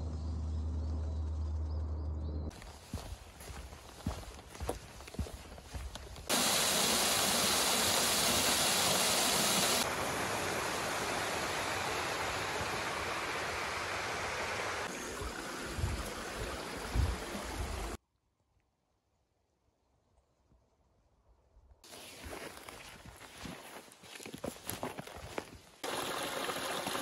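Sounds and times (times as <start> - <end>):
stream water rushing: 5.2 - 18.0, 25.8 - 27.0.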